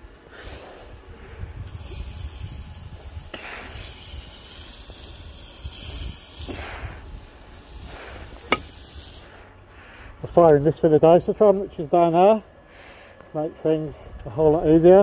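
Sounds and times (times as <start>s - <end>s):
spray wand hissing: 0.2s - 9.6s.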